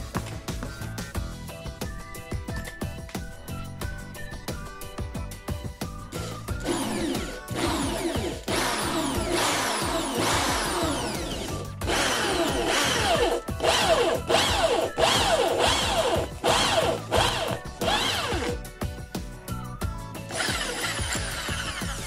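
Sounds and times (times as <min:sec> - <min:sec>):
background music: 0:00.0 - 0:22.0
electric drill boring through plastic: 0:06.6 - 0:18.6, 0:20.3 - 0:22.0.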